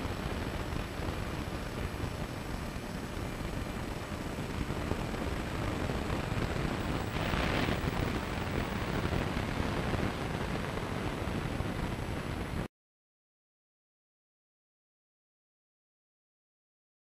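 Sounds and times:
steady rushing noise: 0.0 - 12.7.

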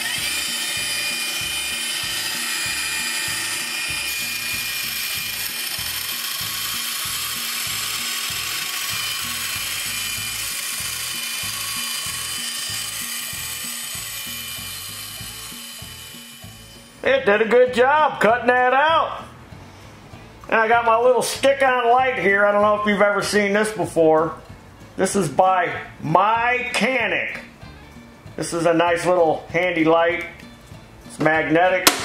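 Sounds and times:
bandsaw cutting sheet metal: 0.0 - 17.6.

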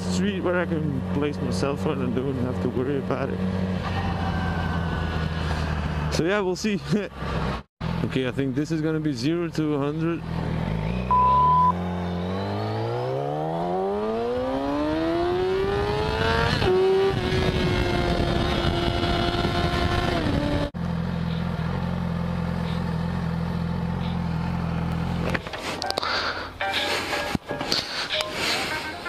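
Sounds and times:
motorcycle engine accelerating: 0.0 - 6.3, 9.6 - 25.8
motorcycle engine idling: 20.8 - 25.4.

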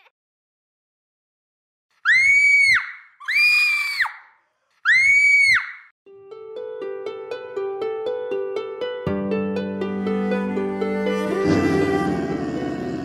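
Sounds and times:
high-pitched screams: 2.0 - 5.9.

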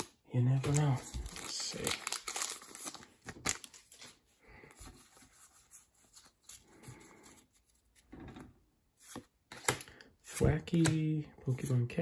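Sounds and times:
cards rustling: 0.0 - 8.1.

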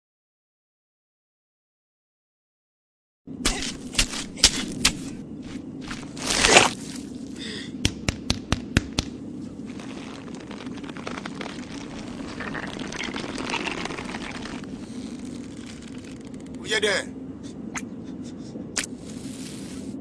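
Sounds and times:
sharp dry cracks: 3.4 - 7.0, 7.8 - 16.6
hands digging in dry sand: 3.4 - 7.4, 9.5 - 16.0, 18.8 - 20.0
low drone: 9.2 - 20.0.

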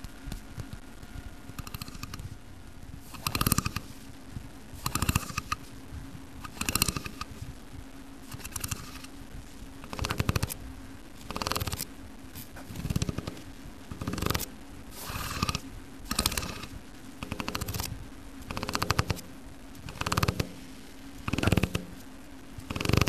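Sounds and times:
fingers raking a metal vent: 1.6 - 2.4, 3.0 - 4.0, 4.7 - 5.7, 6.4 - 7.5, 8.3 - 9.2, 9.8 - 10.6, 11.2 - 23.0.

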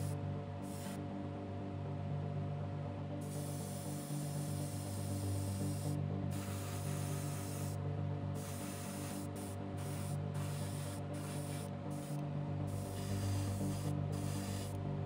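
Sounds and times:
airbrush spraying hiss: 0.0 - 1.0, 3.2 - 7.8, 8.4 - 14.8.

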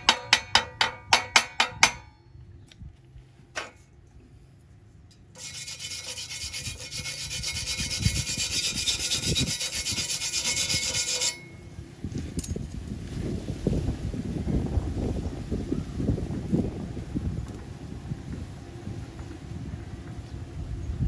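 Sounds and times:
wire brush scratching steel: 5.3 - 11.7.

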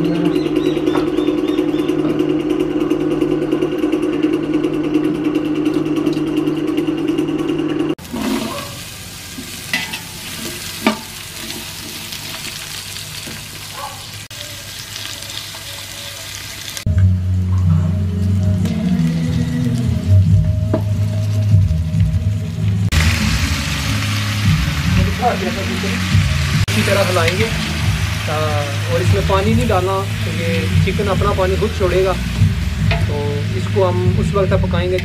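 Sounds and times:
low hum: 0.0 - 8.0
engine-like hum: 0.0 - 9.1
onions sizzling in oil: 8.0 - 16.9, 19.3 - 34.8
metal ladle clinking: 9.7 - 11.6.

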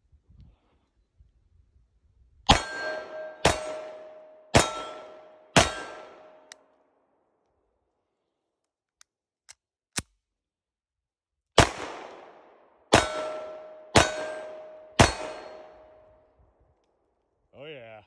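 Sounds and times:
pistol shots ringing: 2.5 - 6.6, 11.6 - 16.1.

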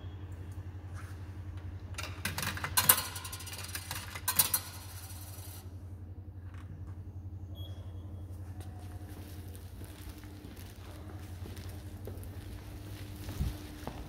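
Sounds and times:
steady low hum: 0.0 - 14.0
coins clinking through mechanism: 2.0 - 5.7.

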